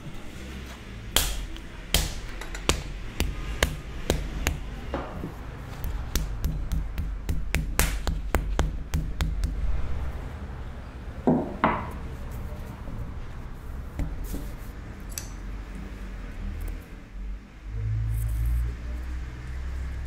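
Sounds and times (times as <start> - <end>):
hands slapping clay: 1.1 - 4.7, 5.8 - 9.6
wooden paddle tapping clay: 1.2 - 5.2, 5.8 - 9.6.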